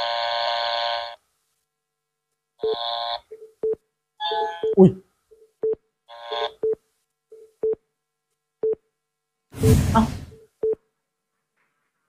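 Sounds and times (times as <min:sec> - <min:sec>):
loud whoosh or hit: 0:09.6 - 0:10.3.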